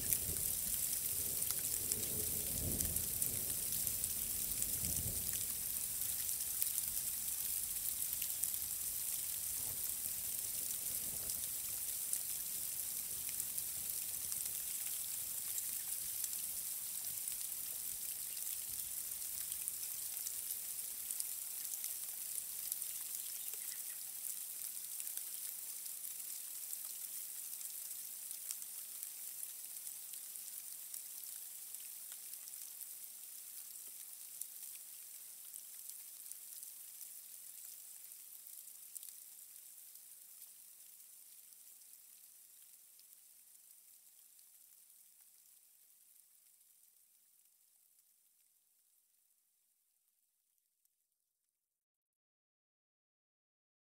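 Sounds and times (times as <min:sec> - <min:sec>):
rain hissing: 0:00.0 - 0:29.8
raindrop ticks: 0:00.0 - 0:32.6.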